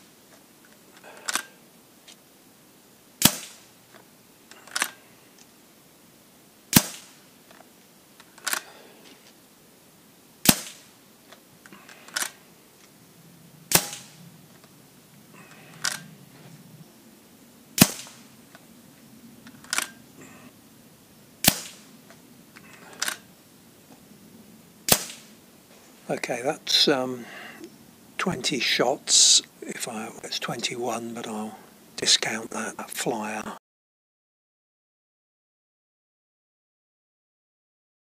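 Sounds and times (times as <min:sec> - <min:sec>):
air rifle shots: 0:03.2 - 0:03.8, 0:06.7 - 0:07.3, 0:10.4 - 0:11.0, 0:13.7 - 0:14.3, 0:17.8 - 0:18.4, 0:21.4 - 0:22.0, 0:24.8 - 0:25.4.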